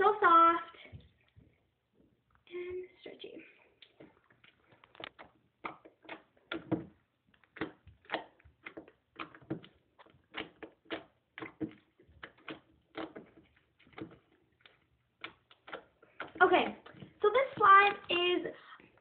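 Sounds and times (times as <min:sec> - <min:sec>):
slime clicking and popping: 0:03.8 - 0:18.1.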